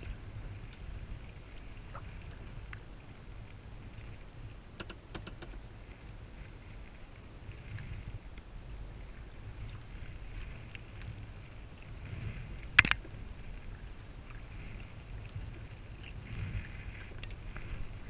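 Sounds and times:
wind rumble on microphone: 0.0 - 18.0
kayak paddle splashing in water: 11.5 - 18.0.

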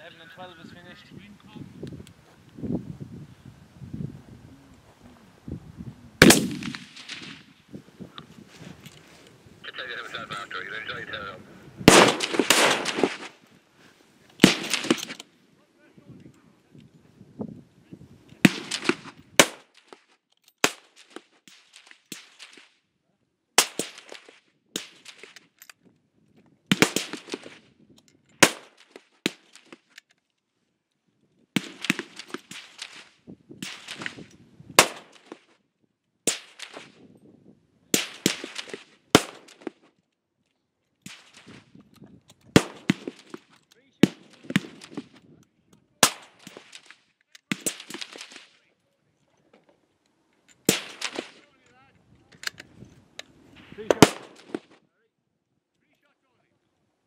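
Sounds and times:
rifle shots with echo: 6.2 - 7.5, 11.8 - 13.4, 14.4 - 15.2, 18.4 - 19.8, 23.6 - 25.3, 26.7 - 27.6, 28.4 - 29.5, 34.8 - 35.4, 38.0 - 39.7, 42.6 - 43.4, 44.0 - 45.1, 46.0 - 46.8, 50.7 - 51.5, 53.8 - 54.7.

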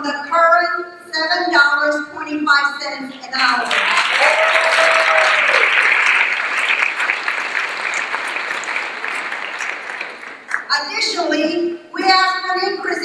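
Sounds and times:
audience applauding: 3.6 - 10.7
held cheer: 3.7 - 6.8.

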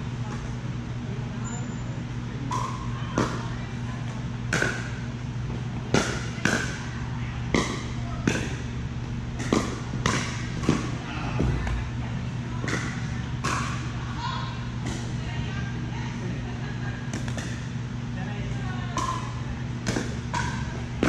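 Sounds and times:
steady low hum: 0.0 - 21.0
ball bouncing on court: 7.5 - 8.7, 9.4 - 11.9, 18.9 - 21.0
paddles hitting plastic ball: 9.4 - 11.8, 17.1 - 17.7, 18.9 - 21.0.

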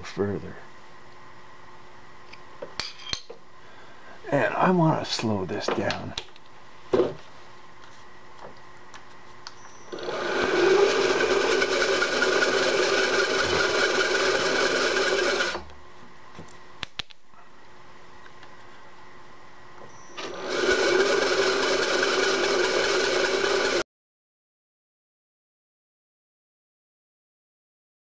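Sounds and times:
milling cutter rasping through metal: 9.9 - 15.6, 20.2 - 23.8.

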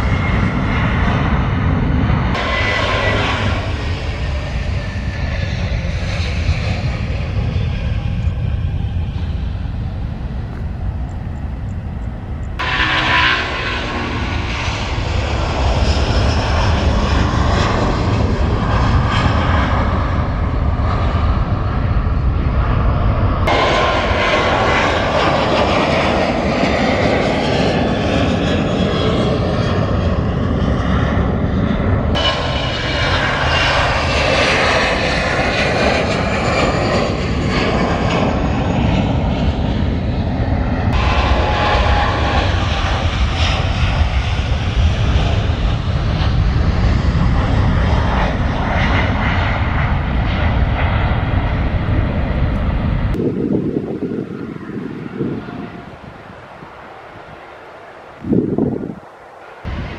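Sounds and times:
jet airliners taking off: 0.0 - 59.9.

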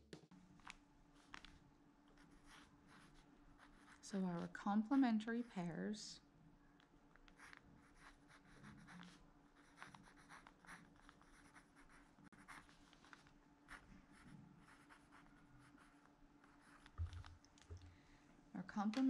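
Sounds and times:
pencil writing on paper: 2.2 - 4.5, 7.3 - 17.0.

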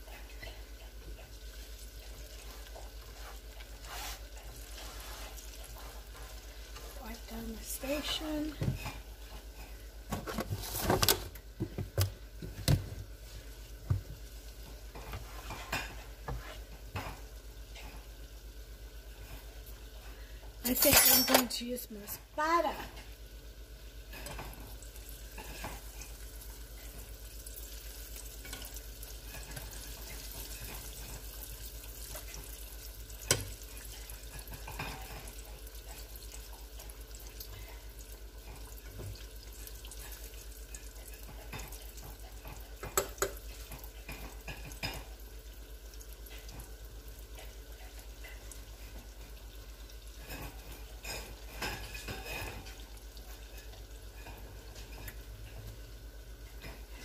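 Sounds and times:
oil sizzling: 0.0 - 57.0
strainer clinking against pan: 20.7 - 21.6.

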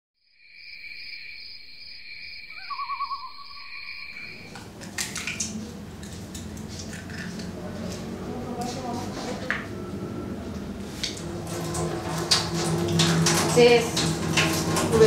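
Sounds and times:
insects droning: 0.2 - 4.8
owl trill: 0.8 - 4.5.

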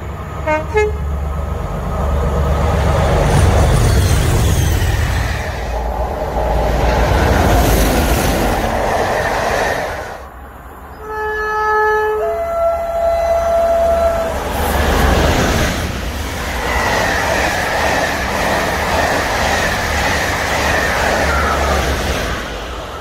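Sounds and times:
diesel locomotive engines working: 0.0 - 23.0
loud rail noise: 0.0 - 23.0
two-tone train horn: 0.4 - 1.2, 10.9 - 14.4.

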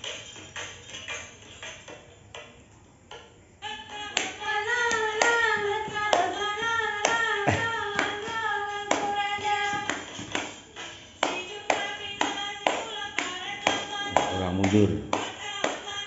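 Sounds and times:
scattered taps: 4.2 - 10.6, 11.2 - 16.0.

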